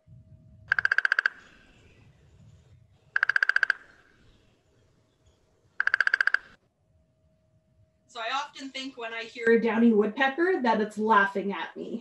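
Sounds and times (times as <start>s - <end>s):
woodpecker drumming on wood: 0.7s - 1.8s, 3.1s - 4.4s, 5.3s - 6.6s.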